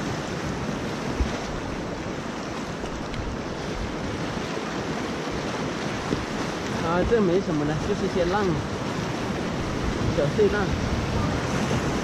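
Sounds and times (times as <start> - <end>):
whitewater river rushing: 0.0 - 12.0
wind buffeting microphone: 0.0 - 12.0.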